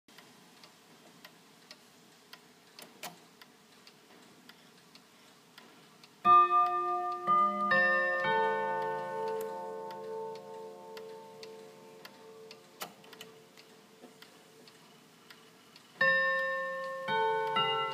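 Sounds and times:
clock ticking: 0.1 - 17.9
clock chime rods ringing: 6.3 - 12.6, 16.0 - 17.9.

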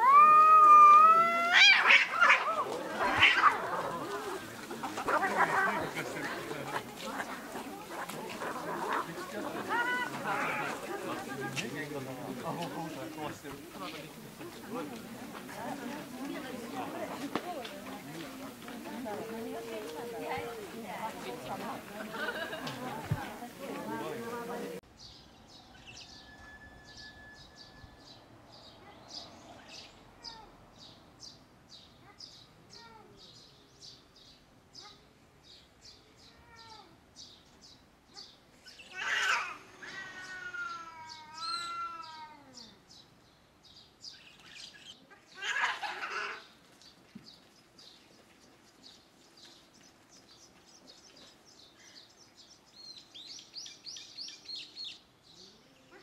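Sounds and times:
cats growling and yowling: 0.0 - 10.9, 38.8 - 42.8
small birds chirping: 46.4 - 56.0.

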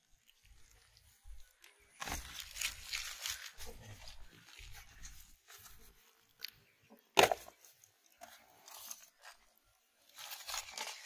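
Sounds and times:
faint rustling and handling: 0.0 - 6.6.

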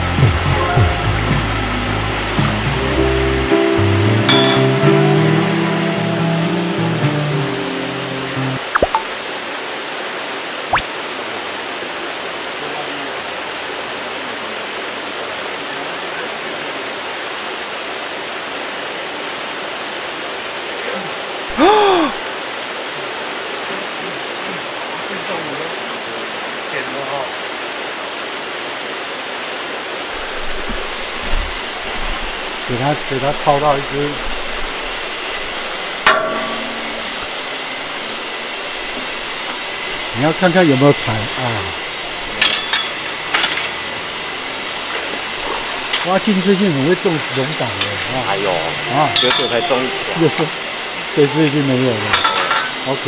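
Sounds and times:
rising and falling tone: 8.6 - 9.1
water rushing into pond: 8.6 - 53.0
sharp ringing clank: 36.1 - 37.1.

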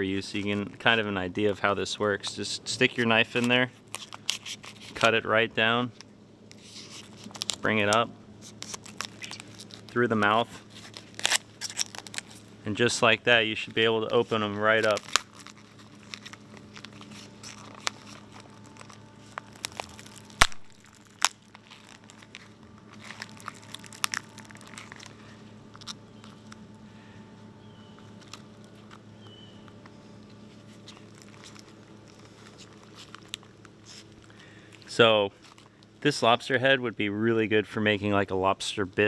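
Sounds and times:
faint low hum: 0.0 - 39.0
shell cracking and crunching: 8.5 - 10.0, 10.8 - 12.4, 14.8 - 26.6, 30.8 - 34.8.

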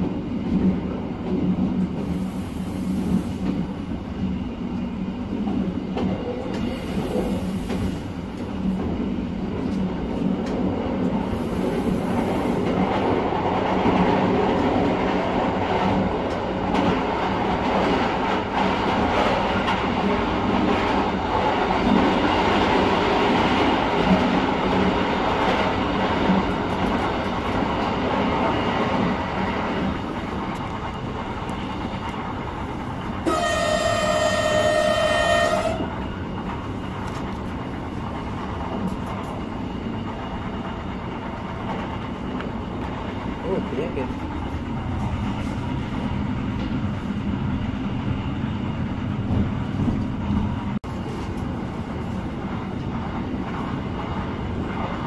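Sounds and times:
train wheels rumbling on track: 0.0 - 55.0
train horn: 33.2 - 36.0.

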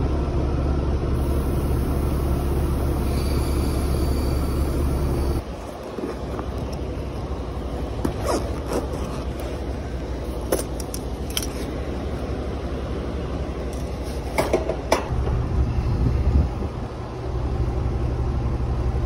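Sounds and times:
steady background noise: 0.0 - 19.0
rustling and clicks in tool bag: 5.4 - 7.3, 7.9 - 11.9.

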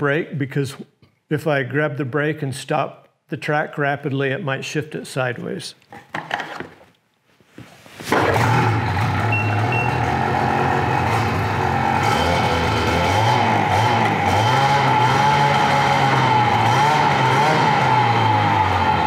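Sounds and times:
snowmobile engine running: 8.2 - 19.0.

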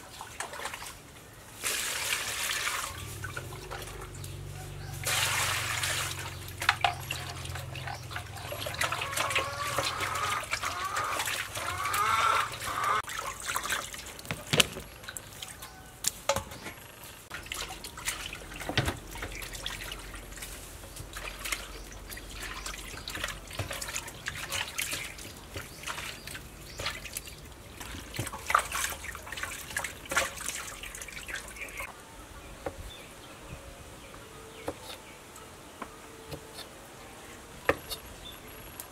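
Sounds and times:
hands splashing water in a basin: 0.2 - 1.0, 1.6 - 4.4, 5.0 - 16.2, 17.3 - 31.9
water dripping: 5.0 - 16.6, 17.3 - 31.9.

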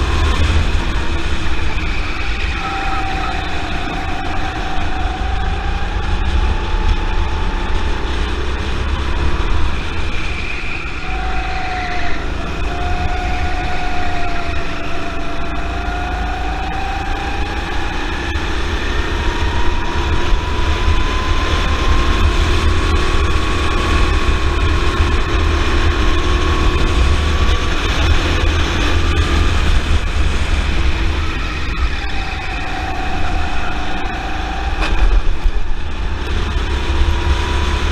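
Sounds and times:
kart engine running: 0.0 - 37.9.

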